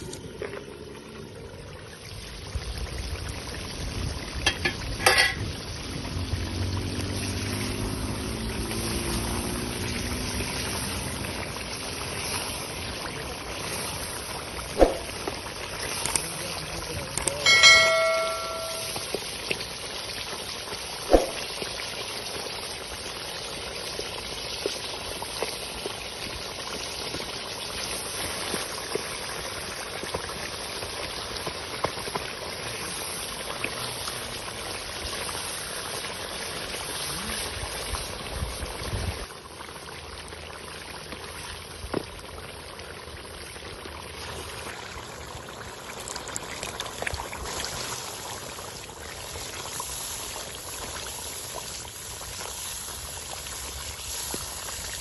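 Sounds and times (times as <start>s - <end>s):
food bubbling and sizzling in pot: 0.0s - 55.0s
short chime: 17.4s - 19.1s.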